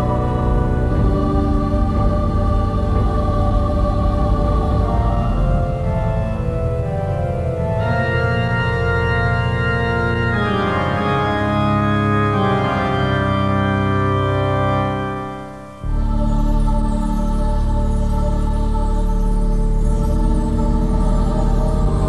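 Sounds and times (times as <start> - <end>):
deep low drone: 0.0 - 10.2, 15.8 - 22.0
organ-like keyboard chords: 0.0 - 22.0.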